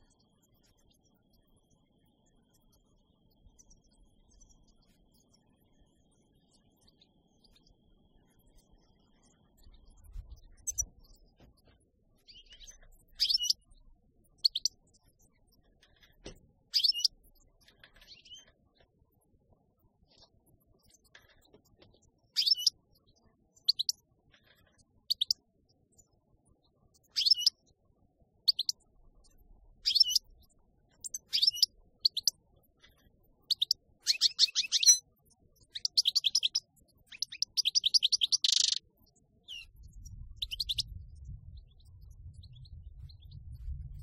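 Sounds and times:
goldfinch twittering and trilling: 9.6 - 11.3, 12.2 - 13.7, 14.4 - 14.8, 16.7 - 18.5, 22.3 - 22.8, 23.6 - 24.0, 25.0 - 25.4, 27.1 - 27.6, 28.5 - 32.3, 33.4 - 43.4
low rumble: 39.8 - 44.0.

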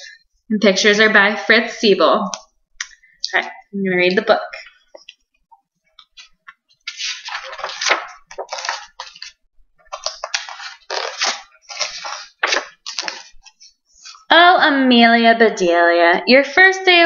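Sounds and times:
book pages rustling: 6.0 - 13.8.

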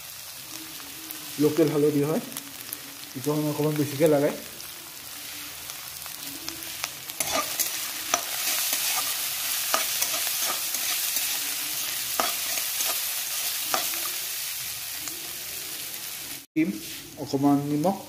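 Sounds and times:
vegetables sizzling in oil: 0.0 - 18.0
metal spatula scraping pan: 7.2 - 14.2.

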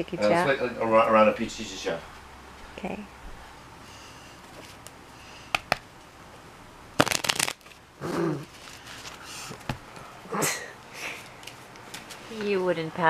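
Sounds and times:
light taps of cards: 5.5 - 5.8
riffle shuffle of cards: 7.0 - 7.8.

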